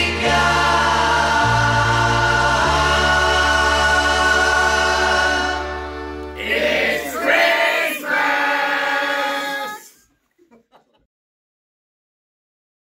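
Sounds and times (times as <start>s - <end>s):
choir singing: 0.0s - 10.0s.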